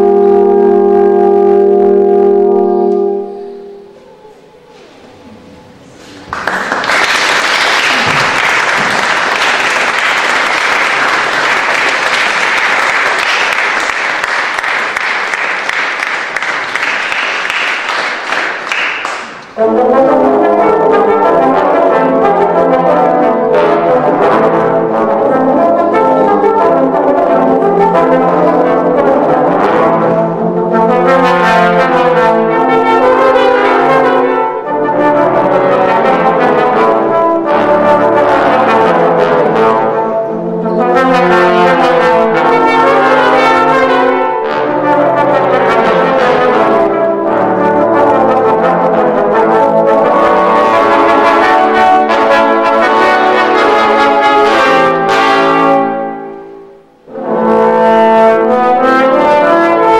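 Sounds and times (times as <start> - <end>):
trombones playing sustained chords: 0.0 - 18.8, 19.5 - 59.9
audience applauding: 6.0 - 19.6.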